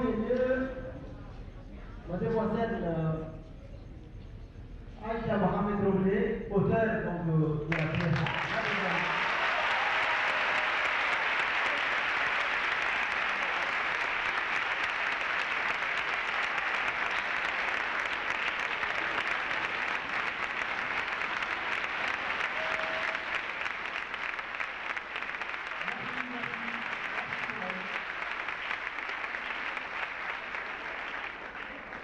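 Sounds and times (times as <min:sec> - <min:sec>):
audience applauding: 0:07.7 - 0:32.0.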